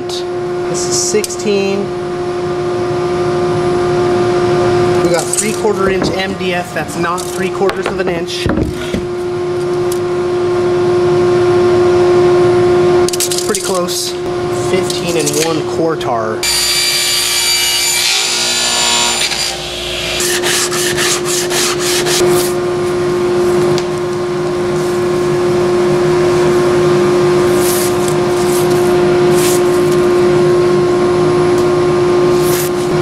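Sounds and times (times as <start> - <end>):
steady motor hum: 0.0 - 33.0
table saw cutting: 16.4 - 22.6.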